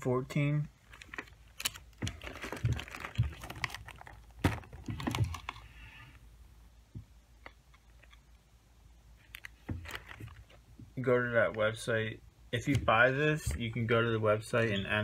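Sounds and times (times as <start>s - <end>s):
cardboard packaging clicks and crinkles: 0.9s - 5.7s, 9.2s - 10.6s.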